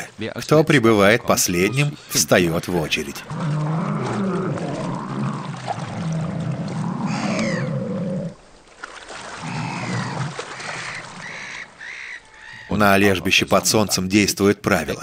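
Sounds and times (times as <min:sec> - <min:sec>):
seals moaning and growling: 0:03.0 - 0:08.4, 0:09.3 - 0:12.7.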